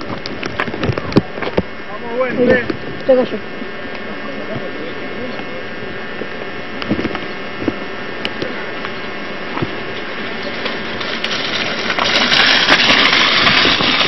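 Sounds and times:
bike tyres scraping on dirt: 9.6s - 14.0s.

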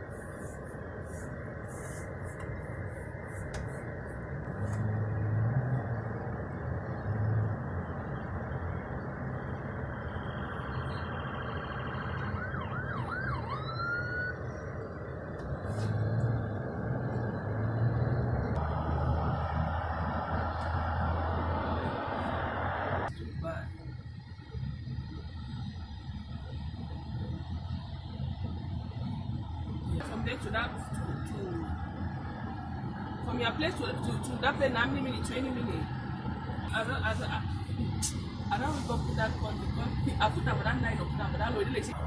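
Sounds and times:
car road and engine noise: 0.0s - 42.0s
siren sweeps: 7.4s - 23.1s.

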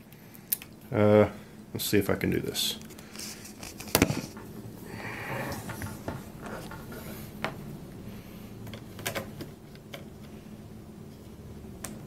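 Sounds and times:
faint low hum: 0.0s - 12.0s
laptop handling rubbing and scraping: 2.9s - 4.5s, 5.6s - 7.5s.

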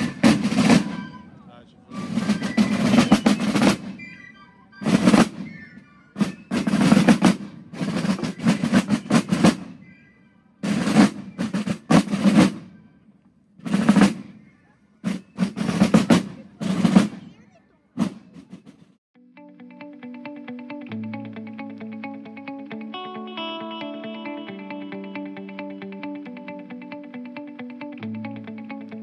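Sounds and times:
group of drummers playing: 0.0s - 1.3s, 1.9s - 4.1s, 4.8s - 9.8s, 10.6s - 12.8s, 13.6s - 19.0s.

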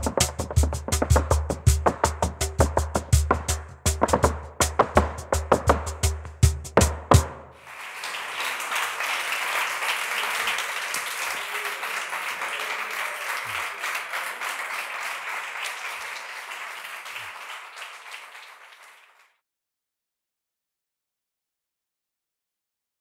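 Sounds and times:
audience applauding: 7.6s - 19.4s.

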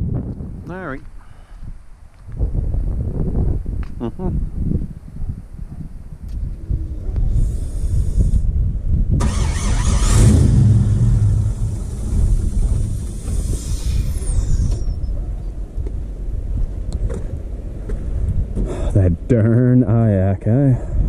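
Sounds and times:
engine cranking and idling: 9.2s - 14.9s.

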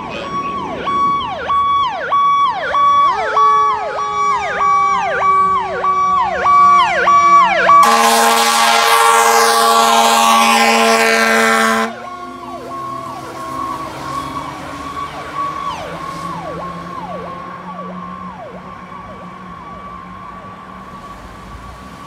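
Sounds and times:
fire engine siren: 0.0s - 22.0s
air horn blaring: 3.4s - 4.2s, 7.2s - 12.2s.

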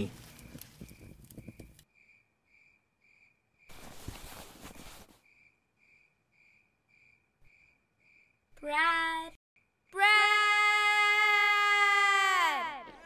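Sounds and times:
crickets chirping: 0.3s - 8.6s.

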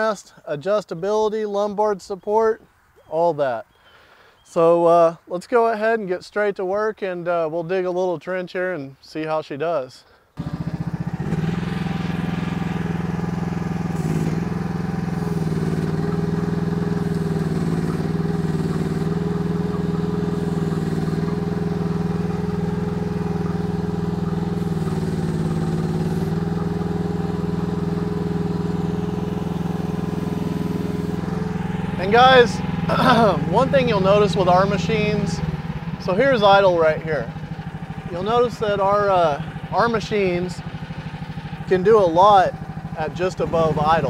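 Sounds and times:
excavator engine running: 10.4s - 44.0s.

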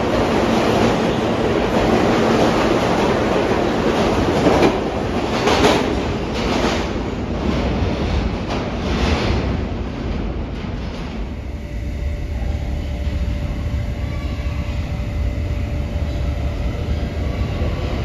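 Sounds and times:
subway train pulling out: 0.0s - 18.0s
train wheels clacking on rail joints: 0.2s - 11.5s.

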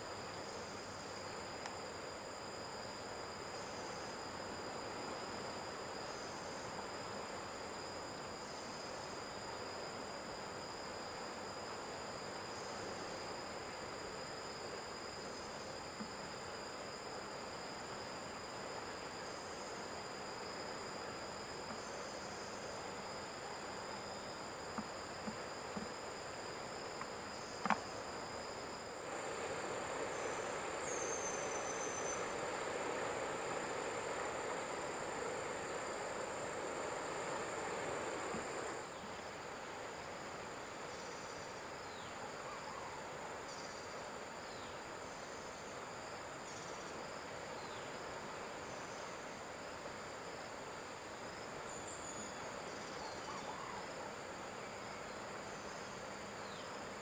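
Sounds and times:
insects droning: 0.0s - 57.0s
faint clicks: 26.9s - 27.9s
rushing hiss: 28.6s - 40.6s.

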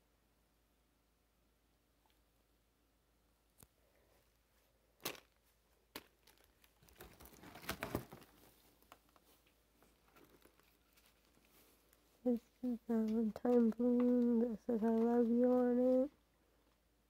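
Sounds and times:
plastic and foil wrapping crinkling: 5.0s - 12.4s, 13.0s - 16.1s.

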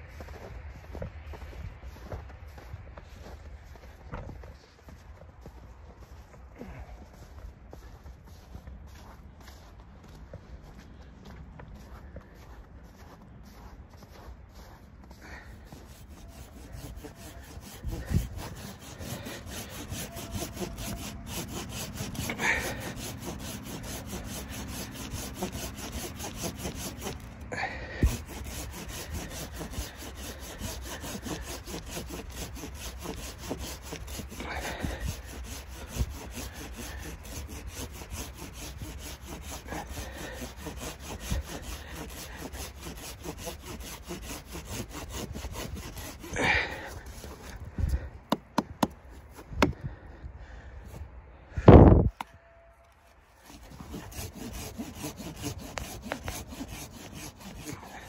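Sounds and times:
hand saw cutting wood: 15.0s - 49.8s, 53.4s - 58.0s.

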